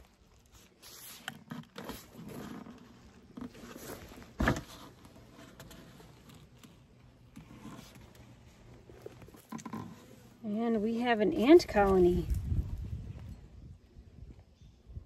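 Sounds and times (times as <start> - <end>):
clicks scrapes and rustles: 0.0 - 10.4.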